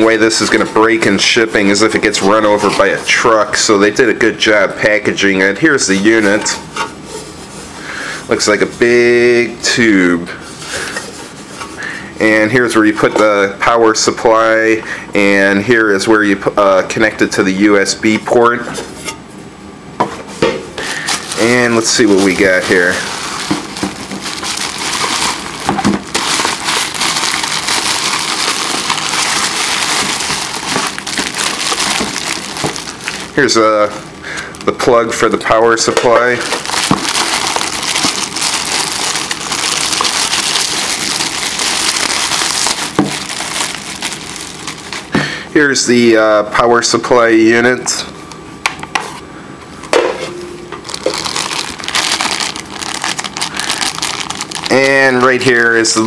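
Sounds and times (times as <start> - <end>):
bubble wrap crinkling: 0.0 - 9.5, 20.8 - 45.2, 50.8 - 56.0.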